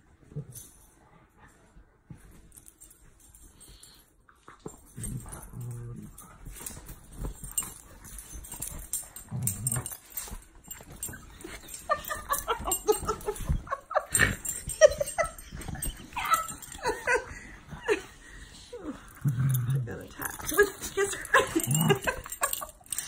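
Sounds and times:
bedding rustling: 0.0s - 23.0s
dogs growling: 4.7s - 23.0s
dogs whimpering and yipping: 7.4s - 19.6s, 20.2s - 23.0s.

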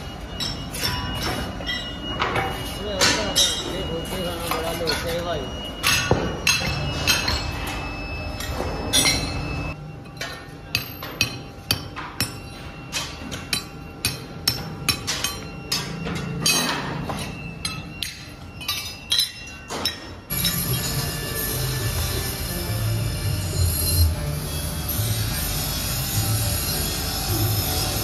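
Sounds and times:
hammer striking metal on anvil: 0.3s - 3.9s, 5.8s - 22.6s.

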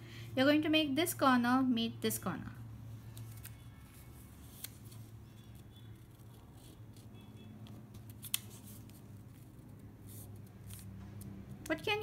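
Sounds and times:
paper crackling: 3.0s - 7.1s, 7.7s - 11.0s.

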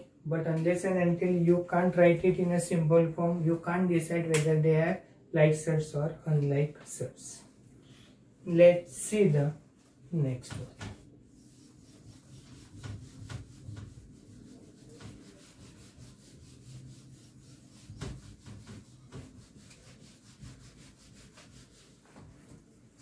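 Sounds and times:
writing tool scratching: 11.4s - 21.9s.

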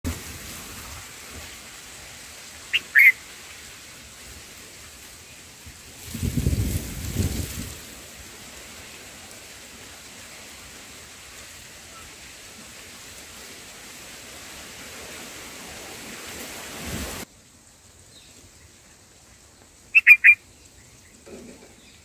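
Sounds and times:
steady hiss: 0.1s - 22.0s
bird calling: 2.7s - 3.2s, 19.9s - 21.0s.

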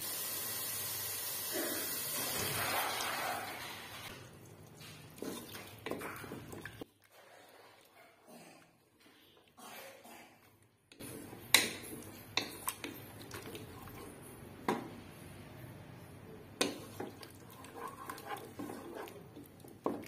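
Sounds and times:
spatula scraping a pot: 16.6s - 20.0s.

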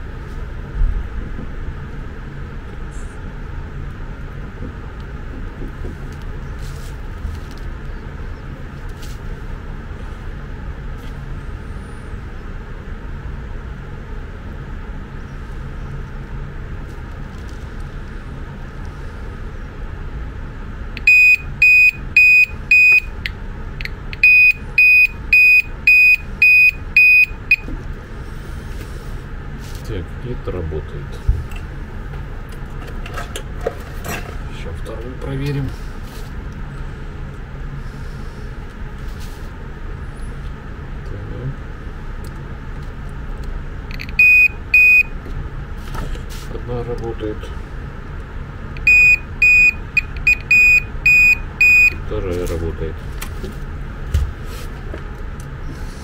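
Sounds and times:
steady low hum: 0.0s - 56.0s
high-pitched beep: 24.2s - 27.7s, 43.9s - 45.1s, 48.8s - 52.0s.

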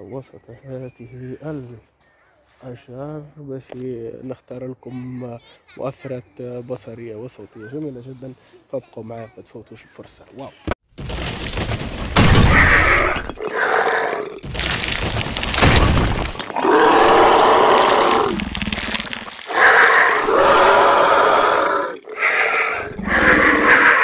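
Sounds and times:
earth rumbling and cracking: 11.0s - 13.5s, 14.4s - 21.2s
monster roars and growls: 12.2s - 14.5s, 15.5s - 24.0s.

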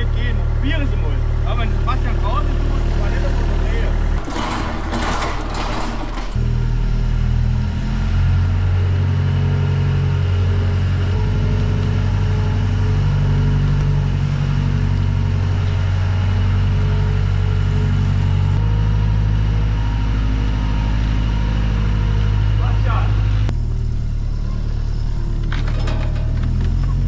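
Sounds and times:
loader engine running: 0.0s - 27.0s.

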